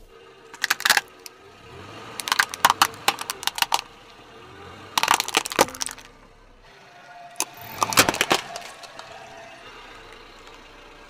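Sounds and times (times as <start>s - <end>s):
plastic toy cracking under a tyre: 0.6s - 1.3s, 2.2s - 3.9s, 5.0s - 6.1s, 7.4s - 9.1s.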